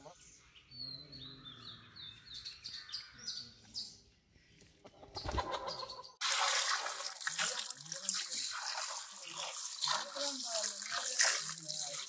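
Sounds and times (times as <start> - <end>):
small birds chirping: 0.0 - 6.2
water pouring over chicken: 6.2 - 12.0.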